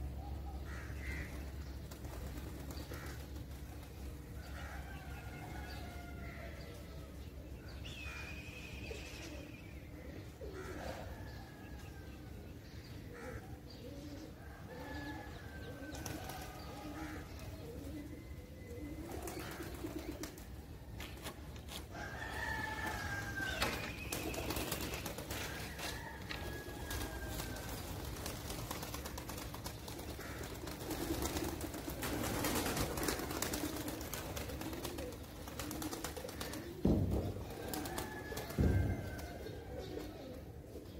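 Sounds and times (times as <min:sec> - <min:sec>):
pigeons cooing: 0:00.0 - 0:40.9
wings flapping: 0:01.1 - 0:04.4, 0:15.9 - 0:17.2, 0:19.0 - 0:21.6, 0:22.3 - 0:39.4.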